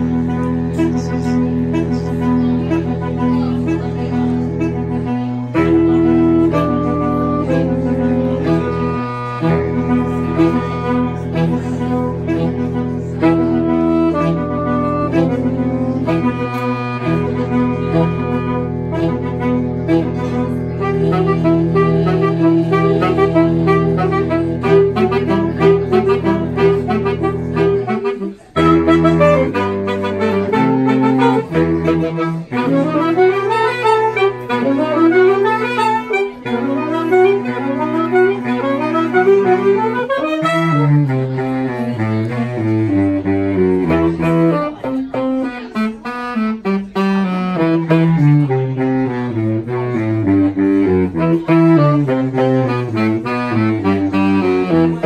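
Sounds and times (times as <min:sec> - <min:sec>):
low saxophone bass line: 0:00.0 - 0:55.0
saxophone choir playing: 0:00.0 - 0:55.0.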